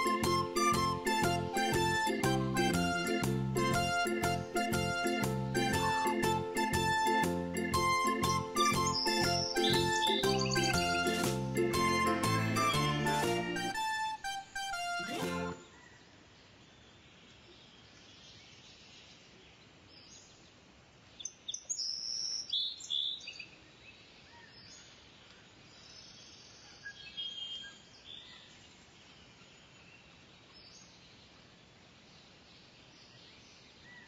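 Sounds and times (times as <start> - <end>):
songbirds chirping and calling: 0.0 - 12.4, 21.2 - 31.5
faint outdoor hiss: 0.0 - 34.0.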